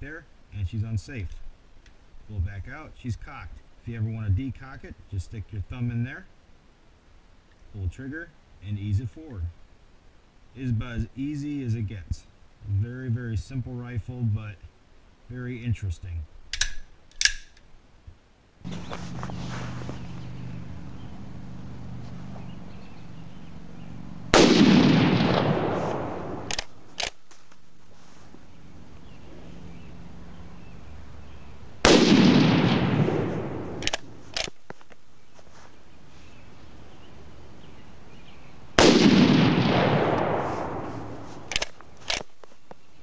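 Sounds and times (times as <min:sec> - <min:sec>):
rifle bolt clacks: 0:16.5 - 0:17.7, 0:26.5 - 0:27.2, 0:33.8 - 0:34.6, 0:41.5 - 0:42.3
rifle shots with echo: 0:24.3 - 0:27.2, 0:31.8 - 0:34.2, 0:38.8 - 0:41.8.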